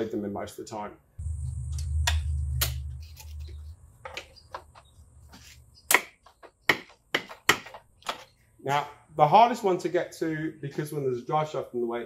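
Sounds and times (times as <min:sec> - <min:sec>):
low hum: 0:01.2 - 0:03.8.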